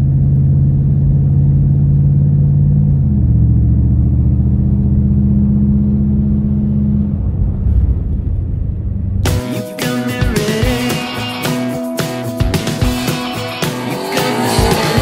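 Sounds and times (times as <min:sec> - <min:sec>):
car engine running: 0:00.0 - 0:09.4, 0:12.2 - 0:15.0.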